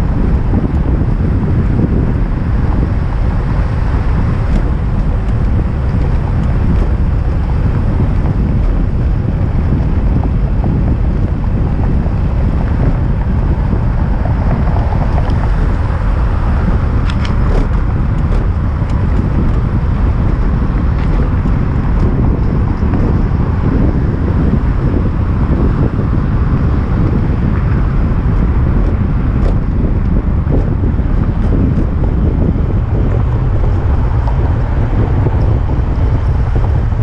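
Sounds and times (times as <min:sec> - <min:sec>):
low road rumble: 0:00.0 - 0:37.0
wind buffeting microphone: 0:00.0 - 0:37.0.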